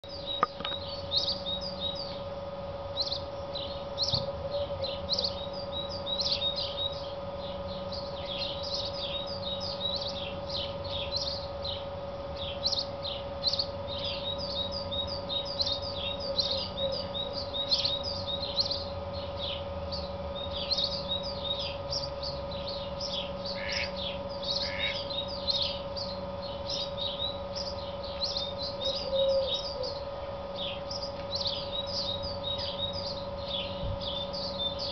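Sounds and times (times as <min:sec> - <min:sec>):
sparrow chirping: 0:00.0 - 0:02.3, 0:02.9 - 0:34.9
faint steady hum: 0:00.0 - 0:34.9.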